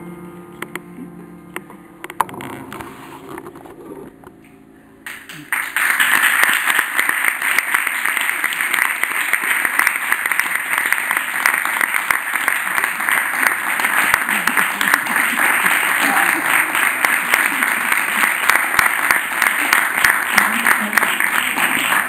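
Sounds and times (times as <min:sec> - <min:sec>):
audience applause: 0:05.1 - 0:22.0.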